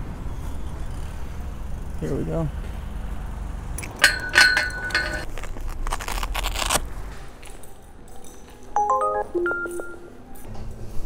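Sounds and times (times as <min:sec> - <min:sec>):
gear scraping and rustling: 0:02.0 - 0:08.6
electronic beep tones: 0:08.8 - 0:10.2.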